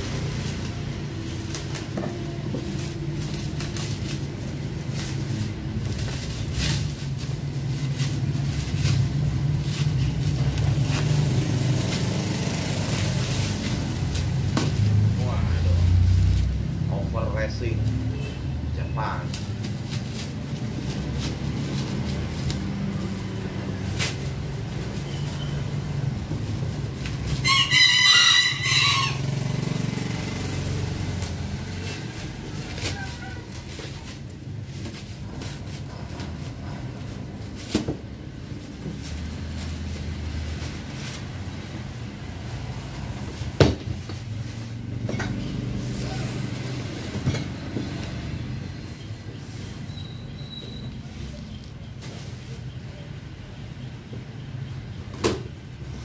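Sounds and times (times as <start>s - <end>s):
rooster crowing: 27.3s - 29.6s
cardboard box knocks: 43.6s - 44.1s.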